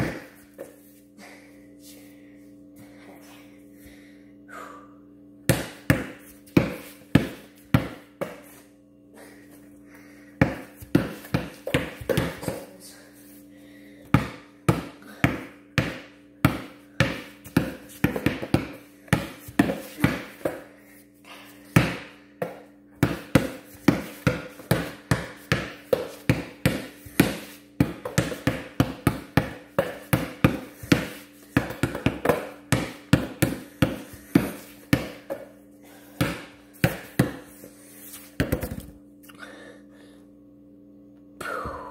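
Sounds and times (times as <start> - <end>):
basketball bouncing: 0.0 - 0.3, 5.5 - 8.4, 10.4 - 12.7, 14.1 - 20.7, 21.8 - 35.5, 36.2 - 37.5, 38.4 - 39.0
low hum: 0.1 - 18.0.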